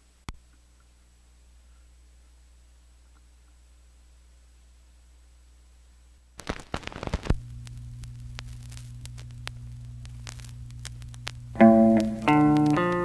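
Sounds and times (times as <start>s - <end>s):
steady low hum: 0.0s - 13.0s
vinyl crackle and ticks: 6.4s - 13.0s.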